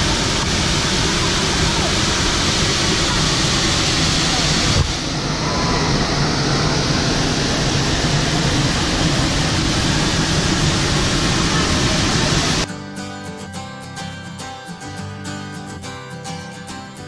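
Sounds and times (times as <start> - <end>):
waterfall roaring: 0.0 - 12.7.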